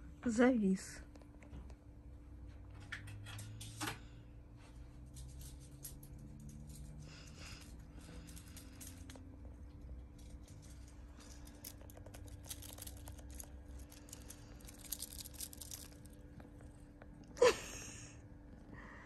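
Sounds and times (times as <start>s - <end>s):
crinkling and rustling of toy and fabric: 4.6s - 17.2s.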